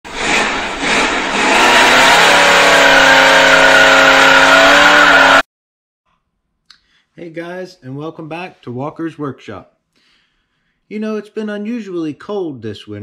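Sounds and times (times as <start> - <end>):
car engine revving: 0.1 - 5.4.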